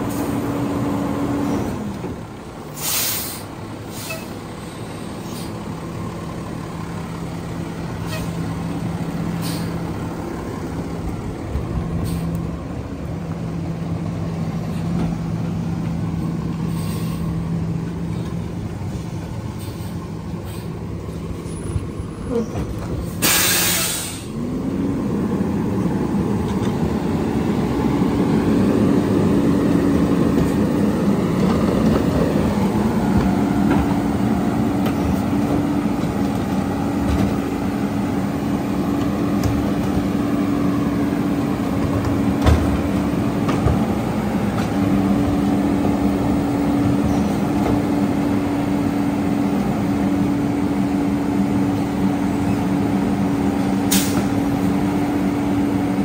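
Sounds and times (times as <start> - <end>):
diesel truck engine revving and idling: 0.0 - 56.0
air brake hiss: 2.7 - 4.4, 9.4 - 9.8, 12.0 - 12.4, 16.7 - 17.3, 19.6 - 20.8, 23.1 - 24.3, 53.9 - 54.3.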